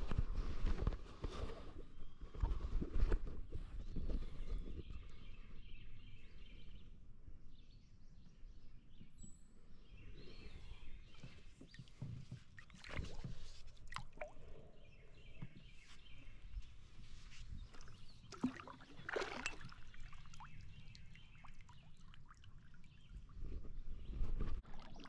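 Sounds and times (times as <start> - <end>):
faint birdsong: 0.7 - 25.0
water splashing against canoe: 11.0 - 14.6, 17.2 - 25.0.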